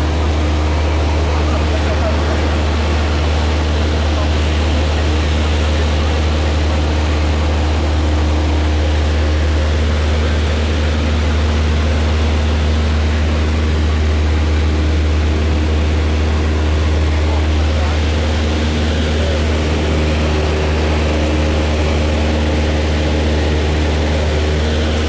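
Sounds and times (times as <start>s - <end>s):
constant hum: 0.0s - 25.0s
light aircraft engine droning: 0.0s - 25.0s.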